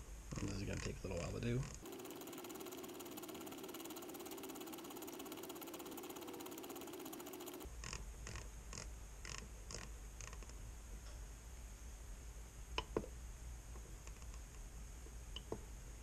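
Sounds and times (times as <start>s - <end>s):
steady hum: 1.8s - 7.7s.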